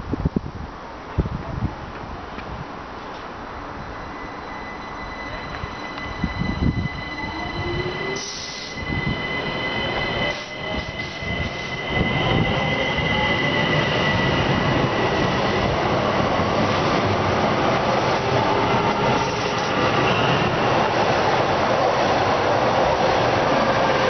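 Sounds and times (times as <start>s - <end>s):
train wheel-on-rail rumble: 0.2s - 24.0s
rising electric whine: 3.9s - 15.6s
high wheel squeal: 4.0s - 15.4s.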